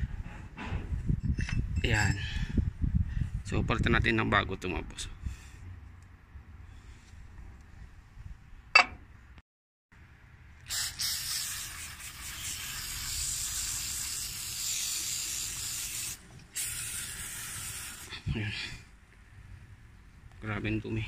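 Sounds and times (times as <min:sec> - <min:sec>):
aerosol can spraying: 0:10.7 - 0:18.1.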